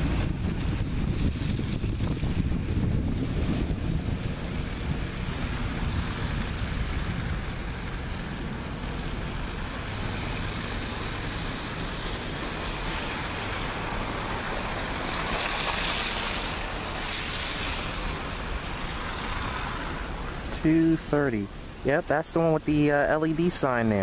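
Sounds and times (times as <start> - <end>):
wind buffeting microphone: 0.0 - 15.3.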